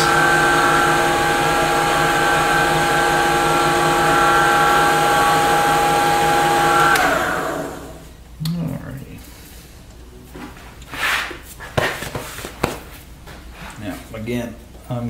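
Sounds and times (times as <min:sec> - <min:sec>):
wood lathe motor whining: 0:00.0 - 0:08.1
lathe switch click: 0:06.9 - 0:07.2.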